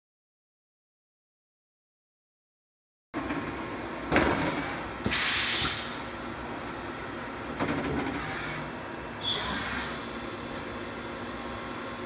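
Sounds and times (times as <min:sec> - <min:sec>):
steady mechanical hum: 0:03.2 - 0:12.0.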